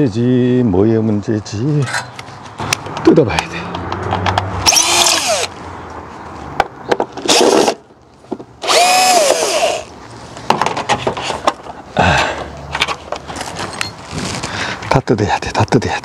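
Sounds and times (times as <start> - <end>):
cordless drill whirring: 4.6 - 5.5, 8.6 - 9.9.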